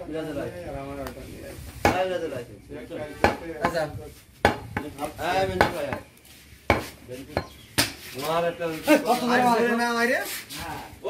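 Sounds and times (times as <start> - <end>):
cleaver chopping on wooden block: 3.2 - 3.8, 4.4 - 4.9, 6.7 - 8.0.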